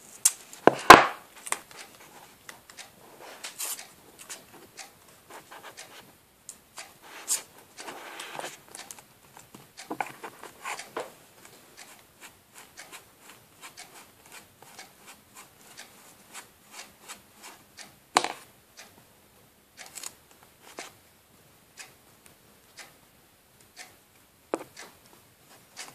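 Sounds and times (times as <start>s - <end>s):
small clicks and scrapes: 6.8s - 17.6s, 24.6s - 25.9s
rustling: 7.0s - 17.6s.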